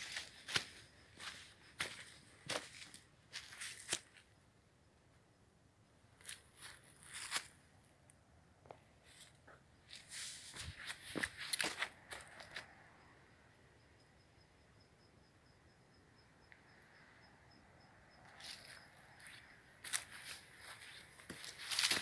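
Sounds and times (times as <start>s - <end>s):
footsteps crunching on dry leaves: 0.0s - 4.2s, 6.2s - 7.5s, 9.9s - 12.5s, 18.4s - 22.0s.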